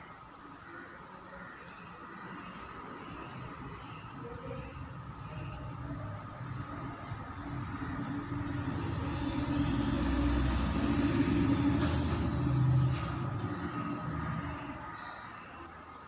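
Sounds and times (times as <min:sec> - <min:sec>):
low mechanical rumble: 0:04.8 - 0:14.8.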